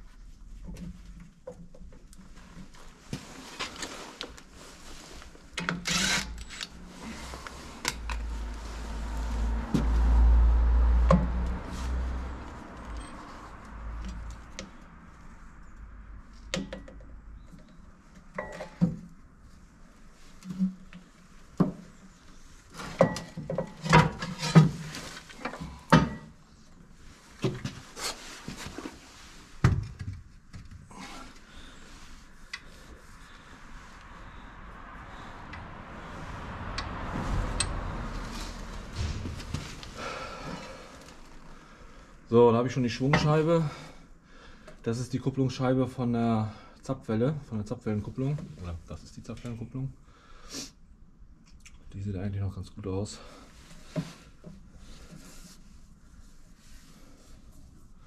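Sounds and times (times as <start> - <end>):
low rumble: 7.2 - 16.2, 33.1 - 41.4
metal clanks and scraping: 22.7 - 26.4, 37.4 - 41.2.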